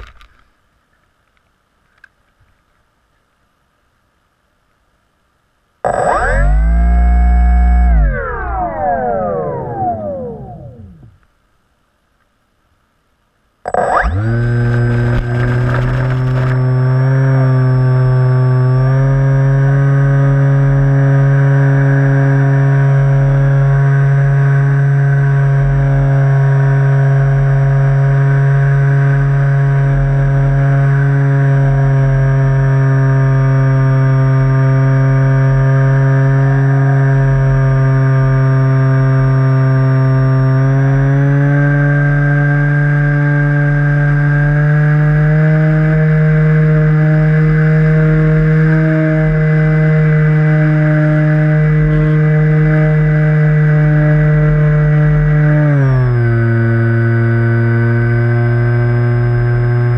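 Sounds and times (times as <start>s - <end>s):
model plane motor buzzing: 5.8s - 11.1s, 13.6s - 59.9s.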